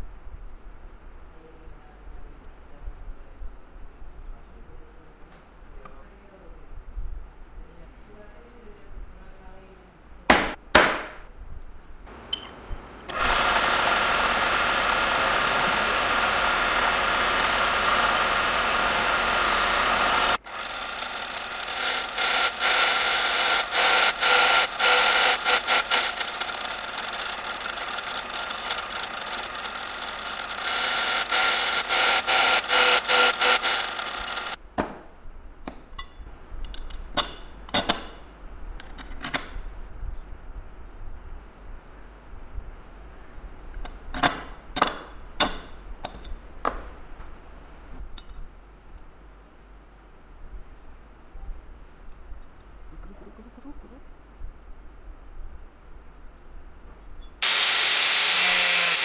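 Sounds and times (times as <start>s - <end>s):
drill press boring through steel: 13.1s - 34.6s, 57.4s - 59.0s.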